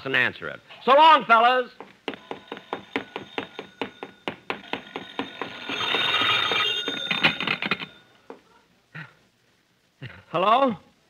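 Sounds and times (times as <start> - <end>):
telephone bell ringing: 2.2 - 8.2.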